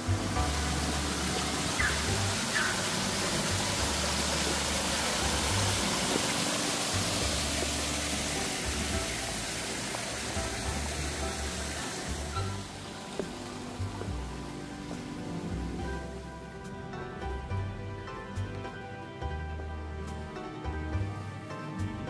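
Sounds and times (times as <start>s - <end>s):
fountain water splashing: 0.0s - 16.5s
background music with bass: 0.0s - 22.0s.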